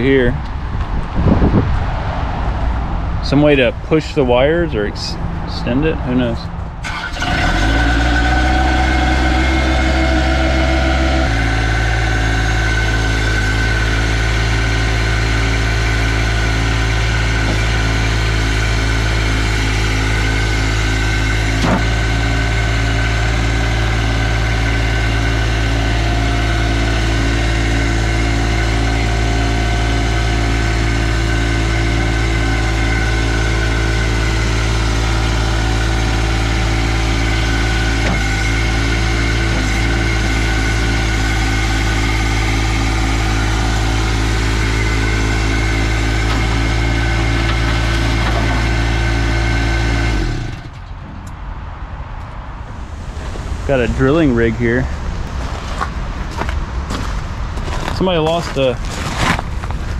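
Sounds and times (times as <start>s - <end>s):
engine starting and idling: 6.8s - 51.0s.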